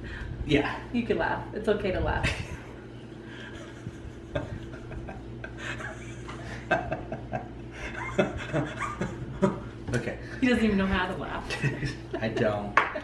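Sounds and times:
man and woman chuckling: 2.3s - 9.8s, 11.6s - 13.0s.

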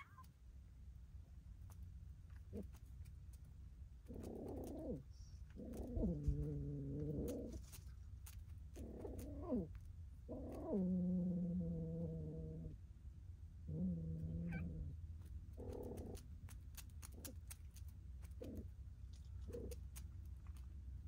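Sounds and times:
cat yowling: 0.0s - 0.3s, 14.4s - 14.8s.

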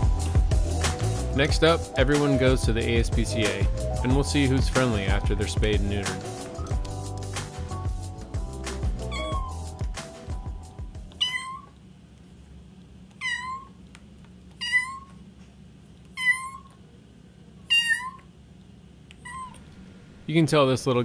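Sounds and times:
background music: 0.0s - 11.2s
kitten meowing: 9.0s - 9.7s, 11.1s - 11.8s, 13.2s - 13.8s, 14.6s - 15.2s, 16.1s - 16.8s, 17.6s - 18.3s, 19.2s - 19.6s.

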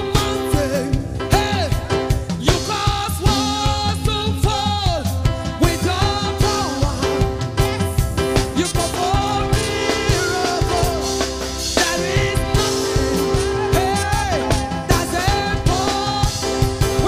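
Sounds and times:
band with drum kit: 0.0s - 17.0s
backing singers: 8.4s - 17.0s.

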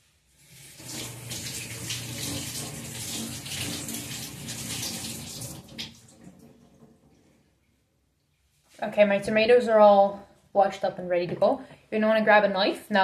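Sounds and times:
kitchen tap running: 0.3s - 7.3s.

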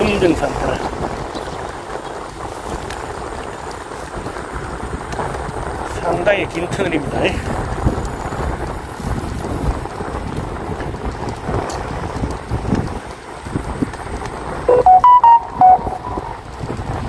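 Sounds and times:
bicycle tyre rumble: 0.0s - 14.7s
wind: 0.0s - 17.0s
short electronic beeps: 14.7s - 16.4s.

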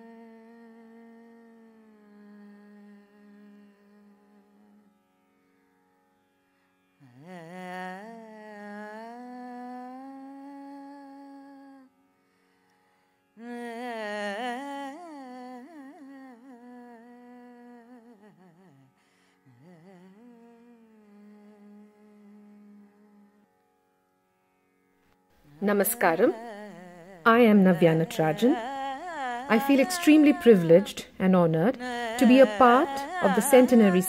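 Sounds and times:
person humming wordless phrases: 0.0s - 4.1s, 25.6s - 34.0s.

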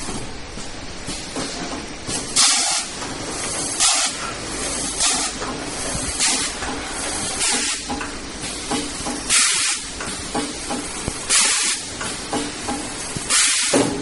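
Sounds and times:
steady machine noise: 0.0s - 14.0s
machine clicks and clunks: 1.0s - 2.4s, 5.0s - 14.0s
hissing air bursts: 1.1s - 14.0s.

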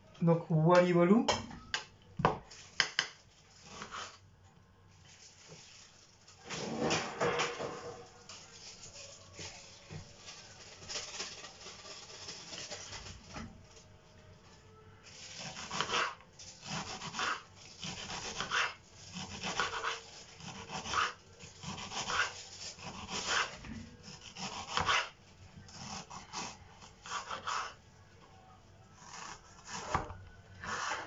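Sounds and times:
knife slicing onion on wooden board: 2.8s - 4.2s, 15.4s - 27.8s, 29.0s - 31.0s.

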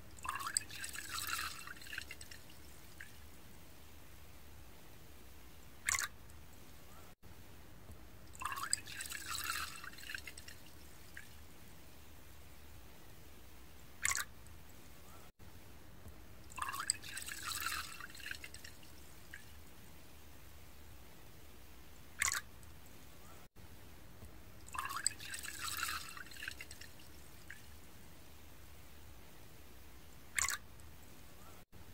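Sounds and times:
liquid pouring into a cup: 0.1s - 3.1s, 5.9s - 6.1s, 8.4s - 11.3s, 16.5s - 18.9s, 24.7s - 27.6s.

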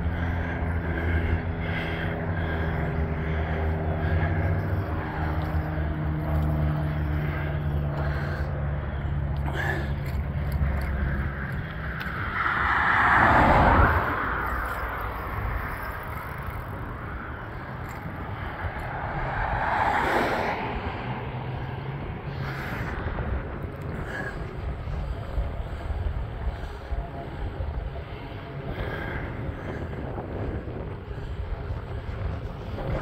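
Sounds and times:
low engine hum: 0.0s - 33.0s
car passing by: 11.9s - 16.7s, 18.0s - 24.6s.

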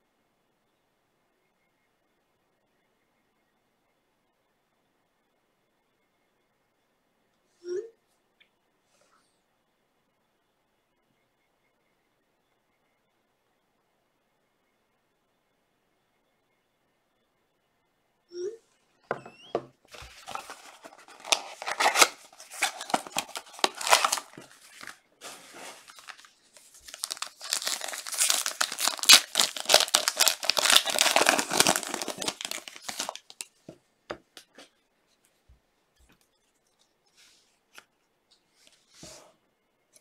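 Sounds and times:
foil pack tearing and crinkling: 20.0s - 33.4s.

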